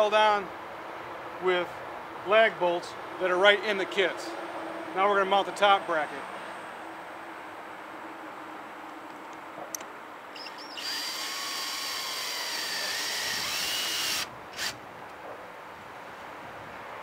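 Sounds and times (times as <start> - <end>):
cordless drill motor whining: 10.4 - 14.8.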